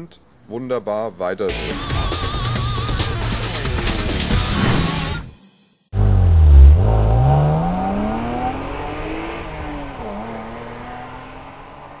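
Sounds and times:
car engine accelerating: 6.0s - 12.0s.

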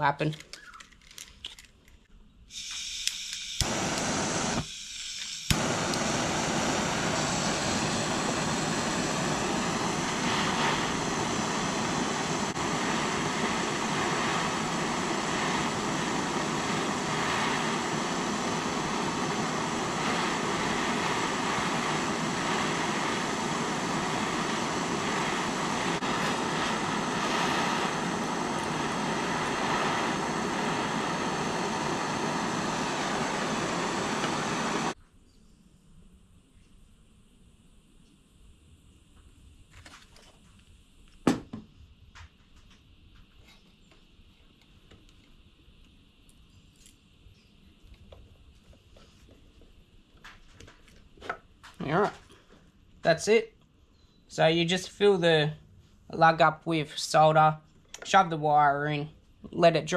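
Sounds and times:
blowtorch hissing: 2.5s - 35.0s.

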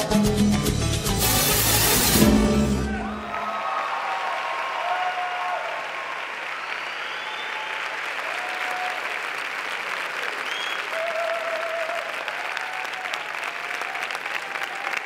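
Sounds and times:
audience applauding: 1.2s - 15.0s
short cheers: 2.6s - 9.2s, 10.3s - 15.0s.

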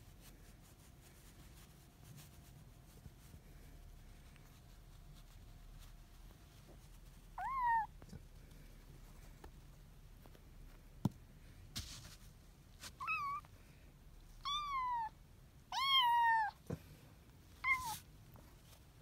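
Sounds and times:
kitten meowing: 7.4s - 8.0s, 13.0s - 13.5s, 14.4s - 15.1s, 15.7s - 16.6s.

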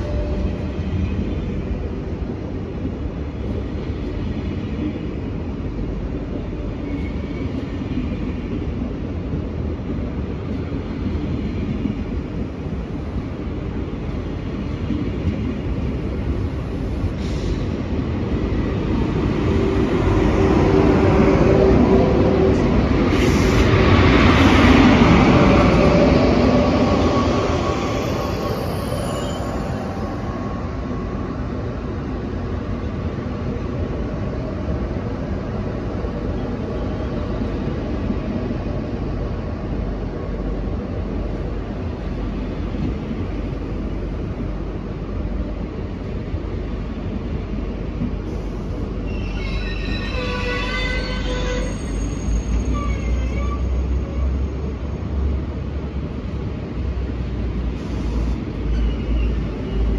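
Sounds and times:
train rumbling: 0.0s - 59.9s.

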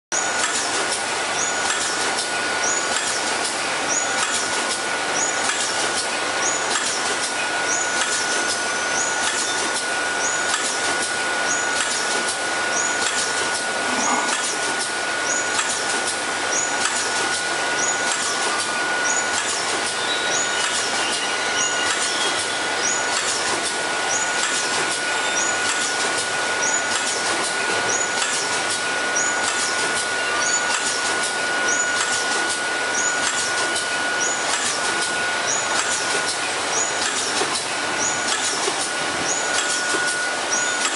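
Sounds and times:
machine high whine: 0.2s - 40.9s
packaging machine hissing: 0.4s - 40.9s
short high machine sound: 7.6s - 15.8s, 16.6s - 40.9s.

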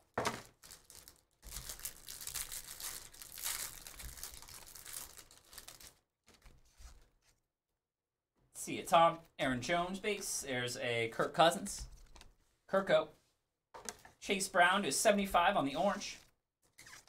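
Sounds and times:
plastic wrapper crinkling: 0.2s - 6.5s.

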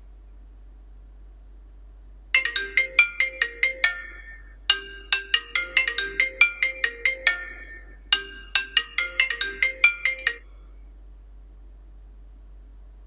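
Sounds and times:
marimba-like ringtone melody: 2.4s - 10.4s.

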